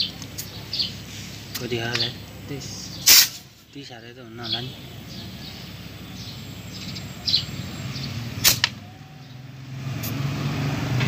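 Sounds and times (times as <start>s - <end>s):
air chuck click and puff: 3.1s - 3.4s.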